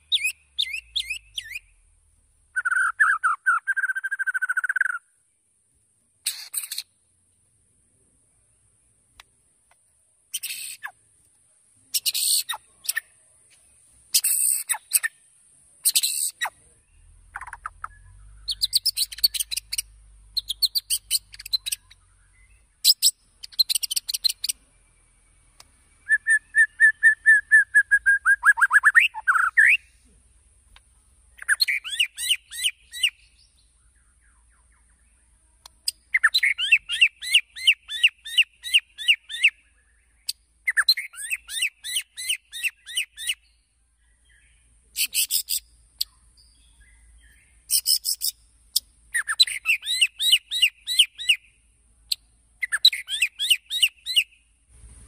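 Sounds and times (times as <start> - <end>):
bird singing fast repeated notes: 0.0 - 5.3, 6.2 - 7.1, 10.2 - 11.1, 11.9 - 13.2, 14.1 - 29.9, 31.2 - 54.5
bird whistle and falling trill: 0.1 - 1.7, 2.6 - 5.0, 26.0 - 29.9.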